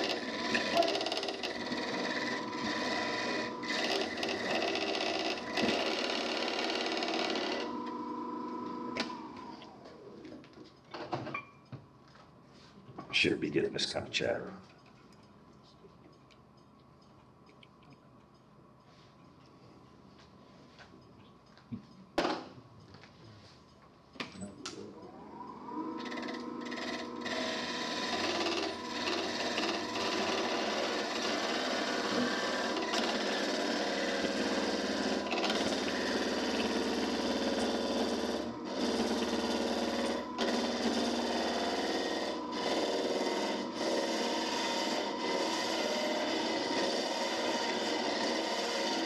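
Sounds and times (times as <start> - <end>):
tool cutting spinning wood: 0.0 - 9.8, 25.9 - 49.0
lathe motor whine: 0.0 - 10.4, 25.1 - 49.0.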